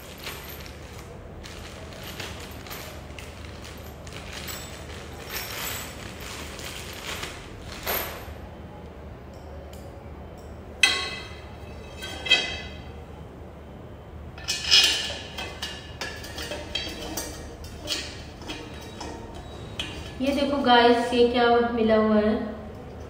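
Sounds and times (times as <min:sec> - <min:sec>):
metal parts knocking and clinking: 0:00.0 - 0:08.3, 0:10.8 - 0:12.9, 0:14.4 - 0:20.5.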